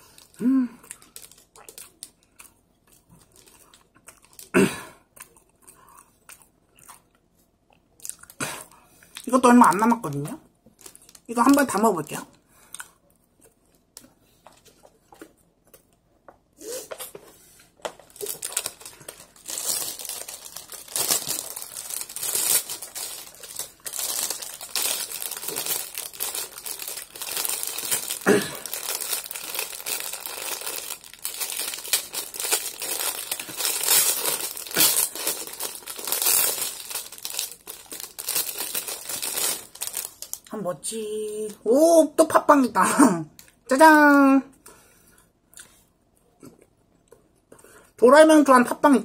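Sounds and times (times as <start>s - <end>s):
plastic wrapper crinkling: 0.0s - 4.5s, 9.2s - 12.8s, 17.8s - 40.6s.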